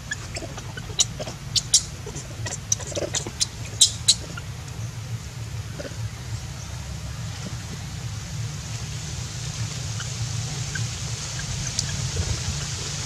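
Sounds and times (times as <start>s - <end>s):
baby monkey squeaking: 0.0s - 4.5s, 10.0s - 12.8s
low hum: 0.0s - 13.0s.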